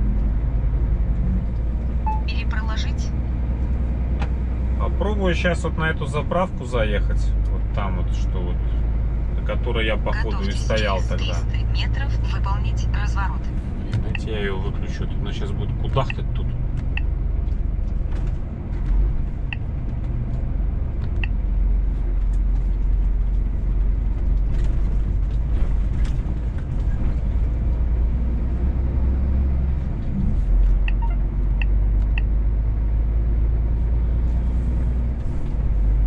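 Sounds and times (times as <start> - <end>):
truck diesel engine rumble: 0.0 - 36.0
short electronic beeps: 2.0 - 2.3, 30.9 - 32.3.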